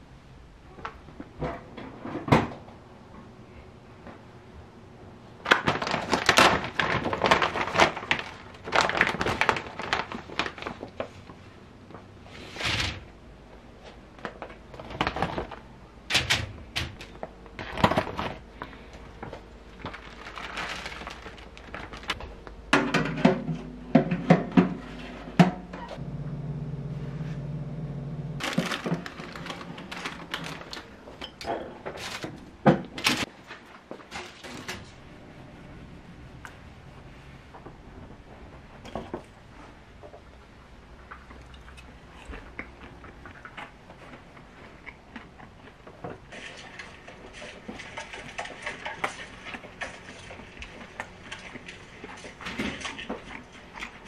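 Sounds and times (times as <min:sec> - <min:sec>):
plastic bag crinkling and tearing: 0:05.4 - 0:11.2, 0:19.2 - 0:22.2, 0:28.4 - 0:31.0, 0:31.9 - 0:32.4
frozen food shaken into basket: 0:05.5 - 0:10.9, 0:19.7 - 0:22.2, 0:28.4 - 0:30.9
low steady hum: 0:06.8 - 0:54.0.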